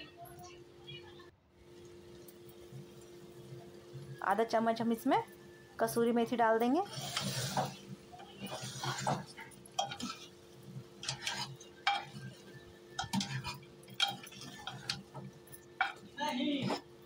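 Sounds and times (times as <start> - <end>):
ladle scraping a pot: 6.8 - 16.9.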